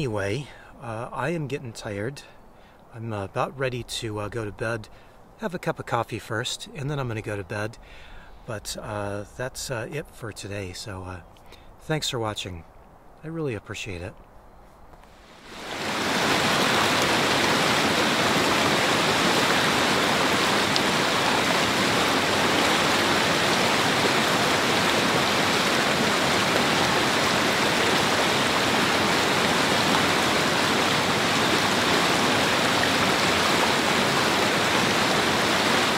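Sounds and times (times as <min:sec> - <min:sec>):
river rushing: 0:15.2 - 0:35.9.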